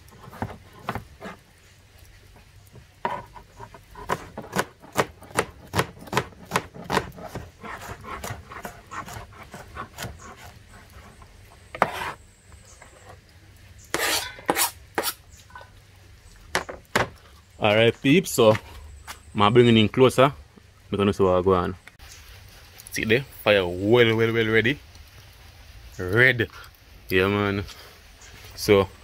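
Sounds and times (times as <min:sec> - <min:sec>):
knife cutting on a board: 0:03.0 - 0:12.2, 0:13.9 - 0:15.2.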